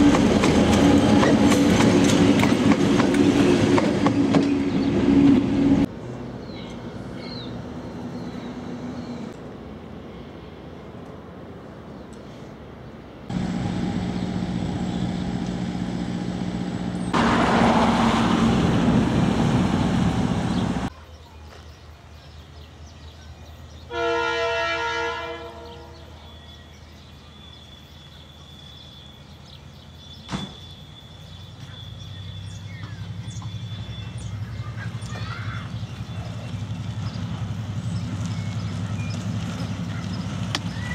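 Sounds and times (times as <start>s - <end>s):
diesel engines droning: 0.0s - 20.9s, 29.4s - 40.9s
locomotive engine rumble: 13.3s - 20.9s, 31.5s - 40.9s
locomotive horn blast: 23.9s - 26.1s.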